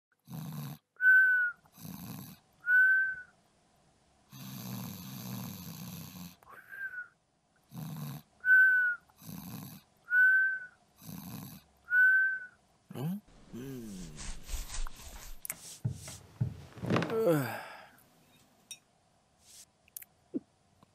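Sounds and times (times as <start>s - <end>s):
rasping snore: 0.2s - 0.8s, 1.8s - 2.4s, 4.3s - 6.4s, 7.7s - 8.3s, 9.2s - 9.9s, 11.0s - 11.7s.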